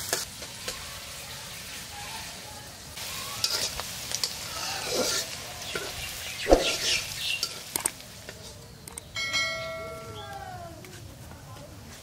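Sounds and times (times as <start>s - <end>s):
onion frying in oil: 0.0s - 9.2s
spatula scraping a pan: 3.4s - 7.7s.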